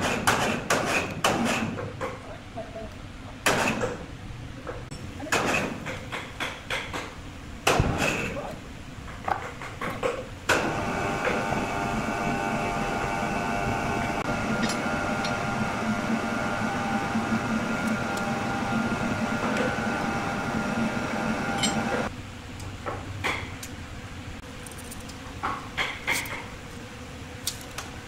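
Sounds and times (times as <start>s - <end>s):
circular saw cutting wood: 10.6s - 22.1s.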